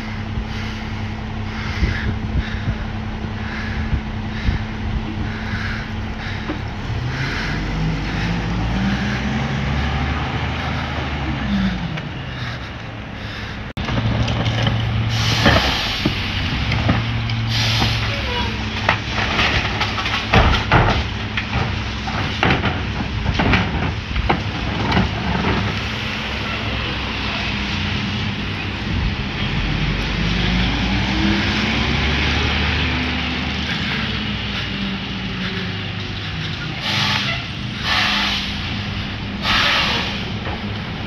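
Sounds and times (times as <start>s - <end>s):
diesel engine revving: 0.0s - 41.0s
air brake hisses: 17.5s - 18.2s, 36.8s - 38.7s, 39.4s - 40.3s
recyclables clattering into truck: 17.8s - 25.9s.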